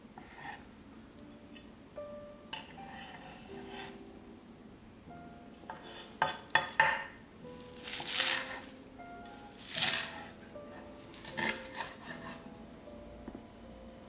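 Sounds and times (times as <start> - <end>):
soft background music: 0.0 - 14.0
knife slicing through chives: 7.8 - 8.7, 9.6 - 10.3, 11.1 - 12.4.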